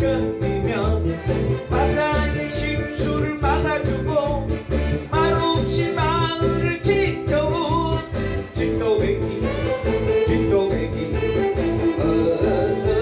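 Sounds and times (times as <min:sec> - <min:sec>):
backing track with steady beat: 0:00.0 - 0:13.0
man singing: 0:00.0 - 0:13.0.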